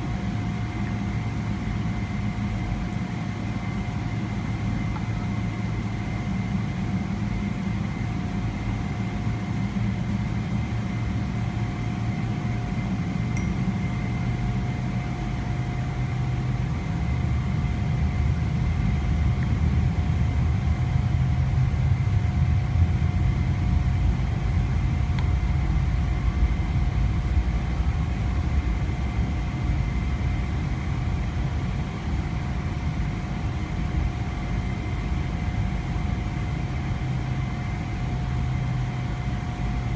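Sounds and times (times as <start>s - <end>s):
aircraft cabin rumble: 0.0s - 39.9s
faint steady whine: 0.0s - 39.9s.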